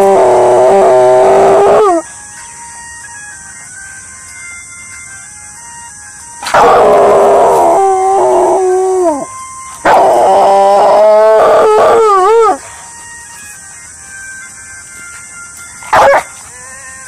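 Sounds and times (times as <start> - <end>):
dog howling: 0.0 - 2.0, 6.4 - 12.6, 15.9 - 16.8.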